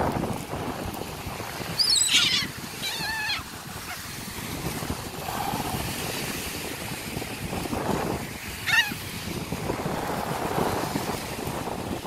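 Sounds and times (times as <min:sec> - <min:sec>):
wind buffeting microphone: 0:00.0 - 0:12.0
gulls squawking: 0:01.8 - 0:04.0, 0:08.6 - 0:09.0.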